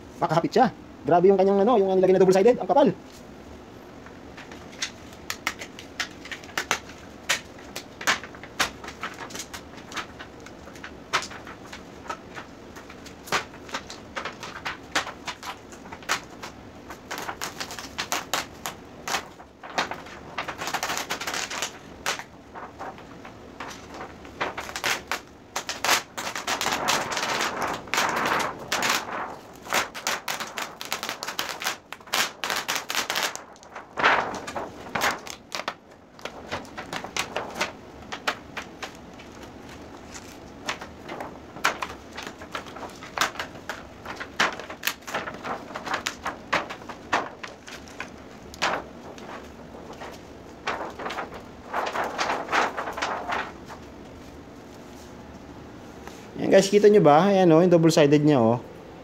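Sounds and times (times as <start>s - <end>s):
plastic sheet peeling off tape: 4.4s - 54.1s.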